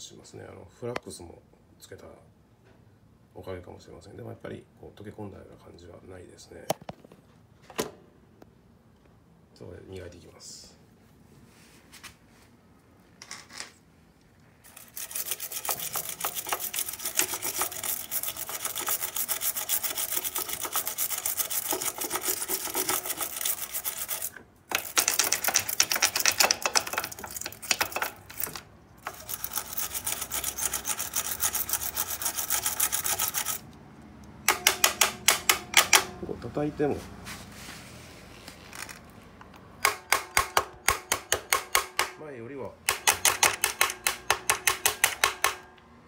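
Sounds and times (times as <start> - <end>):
hand polishing metal: 14.6 - 33.7.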